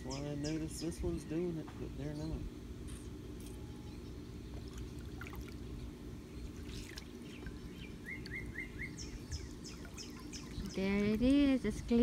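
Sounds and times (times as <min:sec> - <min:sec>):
bird chirping: 0:00.0 - 0:05.0, 0:05.7 - 0:11.2
pool pump humming: 0:00.0 - 0:12.0
water trickling and splashing: 0:04.5 - 0:12.0.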